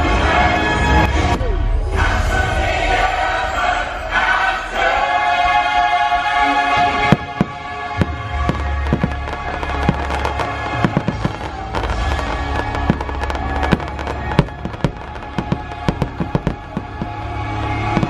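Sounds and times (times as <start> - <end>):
music: 0.0 - 18.0
deep rumble: 6.1 - 18.0
fireworks exploding: 6.4 - 18.0.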